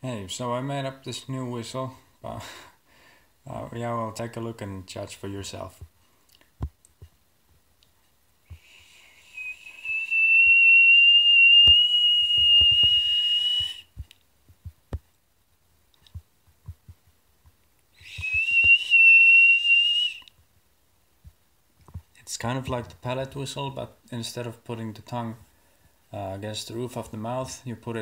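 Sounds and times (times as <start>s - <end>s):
high piercing lip whistle: 8.5s - 13.9s, 18.0s - 20.4s.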